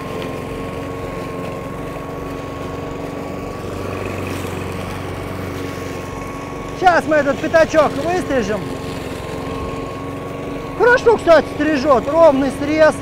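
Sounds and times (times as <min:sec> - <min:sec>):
lawn mower engine running: 0:00.0 - 0:13.0.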